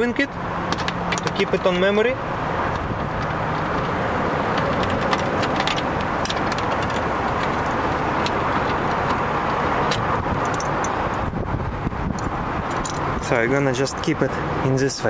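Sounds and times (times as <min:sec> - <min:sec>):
vehicle running noise: 0:00.0 - 0:15.0
metal bracket and screws clicking: 0:12.1 - 0:13.1.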